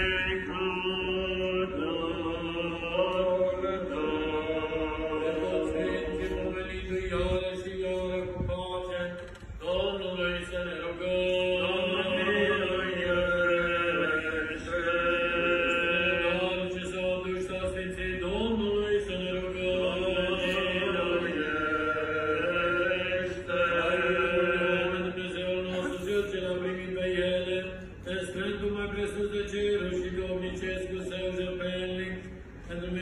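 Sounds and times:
voices chanting long-held notes: 0.0 - 7.7.

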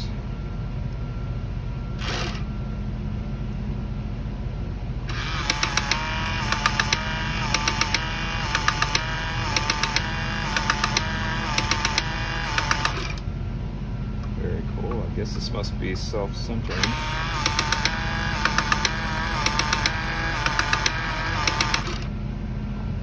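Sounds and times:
small electric motor whining: 2.0 - 2.5, 5.1 - 13.2, 16.7 - 22.1
gearbox clicks: 5.1 - 13.2, 16.7 - 22.1.

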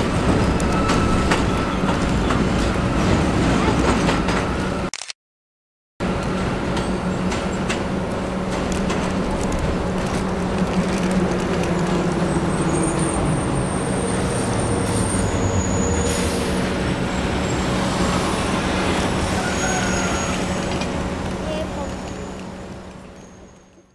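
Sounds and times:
subway train rumbling on tracks: 0.0 - 4.9, 6.0 - 23.9
high-pitched wheel squeal: 12.5 - 16.6, 19.3 - 20.7.

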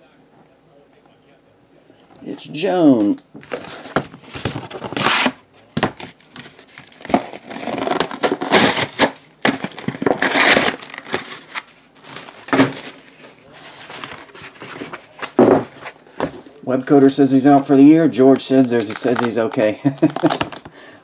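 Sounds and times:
plastic wrapping crinkling: 6.0 - 16.2, 18.2 - 20.7.

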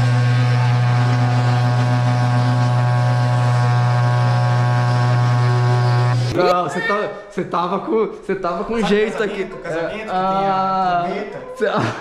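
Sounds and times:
horn blowing long low note: 0.0 - 6.5.

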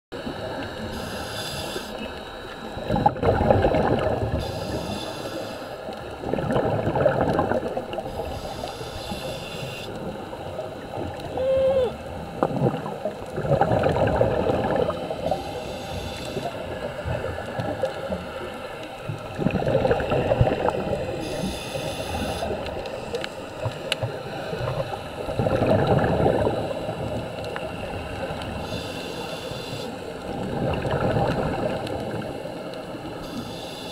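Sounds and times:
hiss of inhaled air: 0.8 - 2.1, 4.3 - 5.9, 8.1 - 10.0, 15.2 - 16.6, 21.2 - 22.6, 28.6 - 30.0, 33.2 - 33.9
exhaled bubbles rushing underwater: 2.0 - 4.9, 5.8 - 8.5, 9.9 - 28.8, 30.1 - 33.2.

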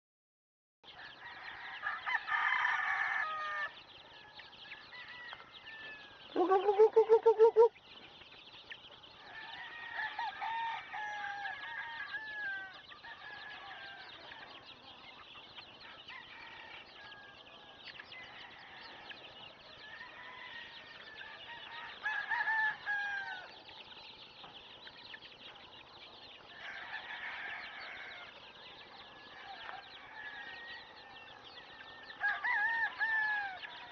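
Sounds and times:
chicken calls: 0.8 - 33.9
chicks peeping and chirping: 0.8 - 33.9
rapid stuttering chicken call: 6.3 - 7.8.

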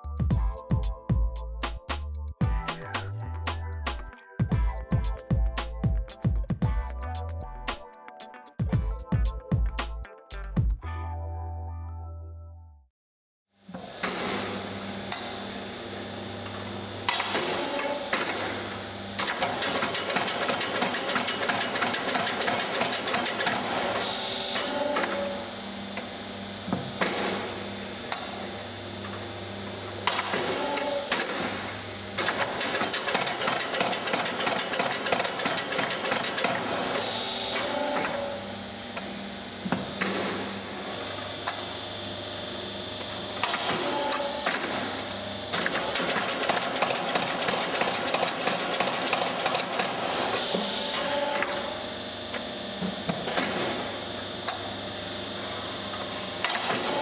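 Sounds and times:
hydraulic hiss: 23.8 - 25.0, 36.8 - 38.3, 50.3 - 51.4.

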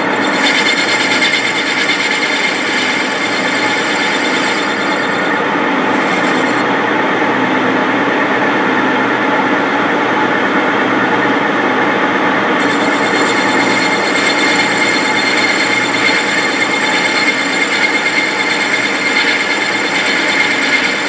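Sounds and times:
boring tool scraping hiss: 0.0 - 6.6, 12.6 - 21.0
lathe running: 0.0 - 6.7, 12.6 - 21.0.

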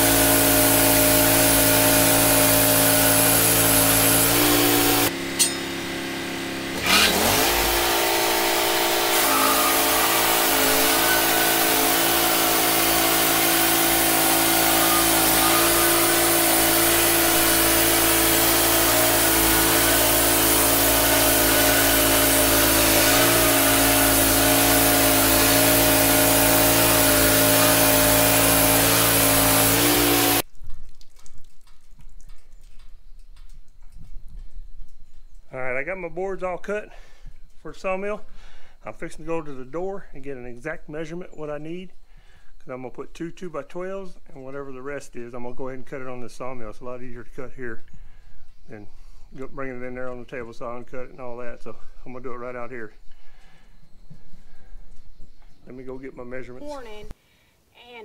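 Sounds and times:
band blade sawing wood: 0.0 - 5.8, 6.7 - 30.4
sawmill gas engine running: 0.0 - 30.5.

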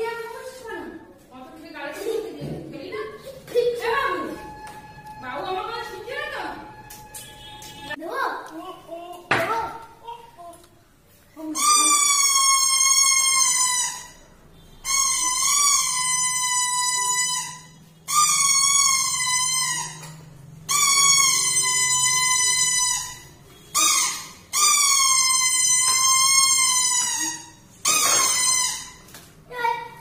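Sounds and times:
plastic toy horn shrill blasts: 5.8 - 8.0, 11.6 - 29.0.

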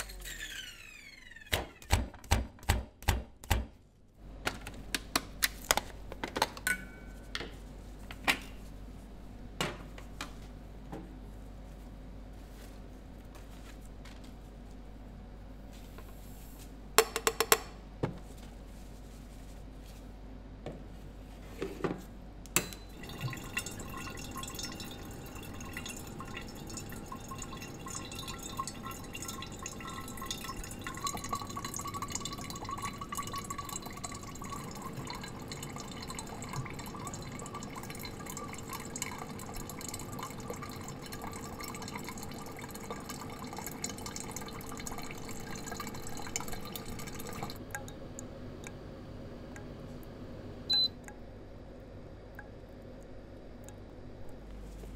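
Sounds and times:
coffee trickling into metal pot: 22.9 - 47.9.

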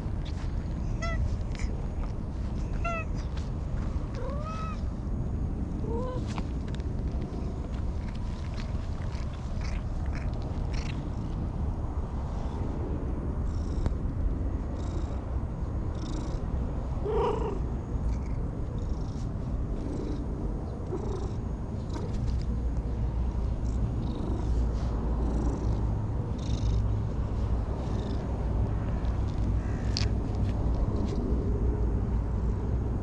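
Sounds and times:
cat purring: 7.3 - 11.4, 17.0 - 22.5, 23.2 - 27.0, 27.8 - 28.3.

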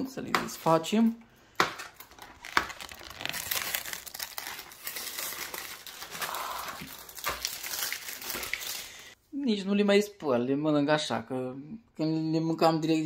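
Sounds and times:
plastic crinkling and crackling: 1.6 - 9.2.

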